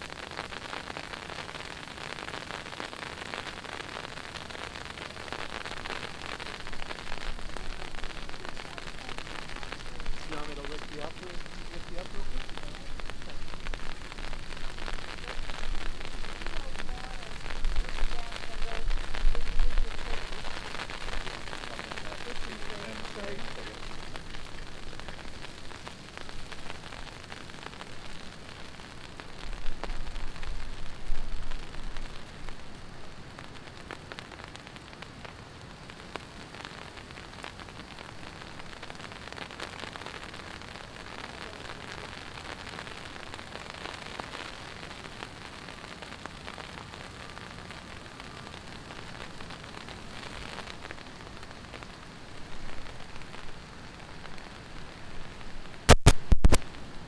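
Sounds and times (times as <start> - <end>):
heavy rain pattering: 0.0 - 57.0.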